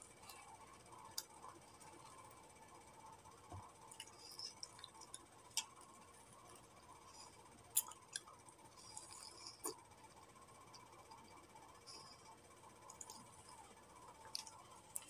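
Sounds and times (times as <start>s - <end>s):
faint steady hum: 0.0s - 15.0s
person chewing: 3.9s - 5.8s, 7.7s - 9.8s, 12.9s - 13.6s, 14.2s - 15.0s.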